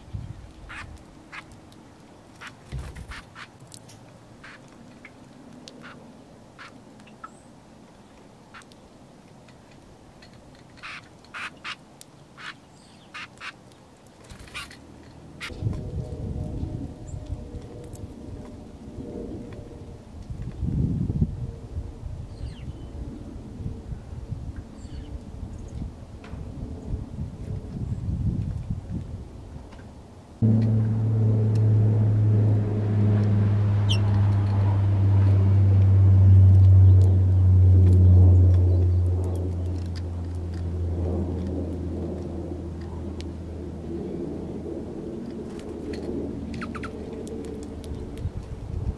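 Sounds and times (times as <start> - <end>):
songbirds chirping: 0.0 - 15.6
bird chirp: 12.4 - 13.5, 33.0 - 35.3, 46.5 - 47.0
low mechanical hum: 14.2 - 48.9.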